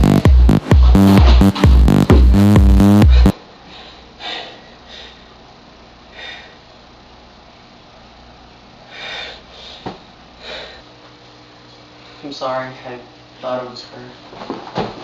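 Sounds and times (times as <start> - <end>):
loud electronic dance music: 0.0 - 3.3.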